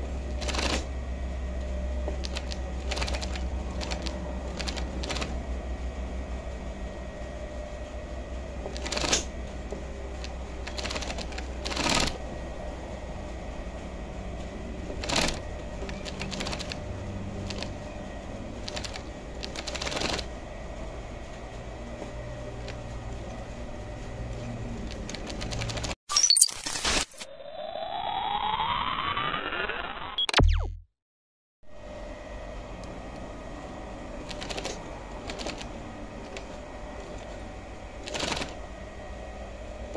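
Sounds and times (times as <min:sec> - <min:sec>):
sewing machine stitching: 0:00.4 - 0:00.9, 0:02.2 - 0:05.4, 0:08.7 - 0:09.4, 0:10.1 - 0:12.2, 0:15.0 - 0:16.8, 0:18.6 - 0:20.3, 0:38.0 - 0:38.6
glitchy electronic sound effect: 0:26.1 - 0:30.9.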